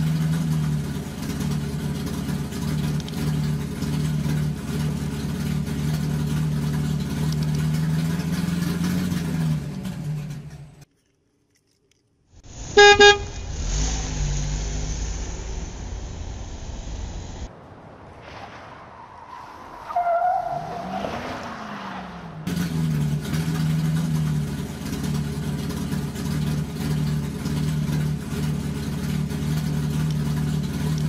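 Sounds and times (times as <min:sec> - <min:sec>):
vehicle engine running: 0:00.0 - 0:10.9, 0:12.4 - 0:17.7, 0:22.2 - 0:31.0
horn toot: 0:12.6 - 0:14.2.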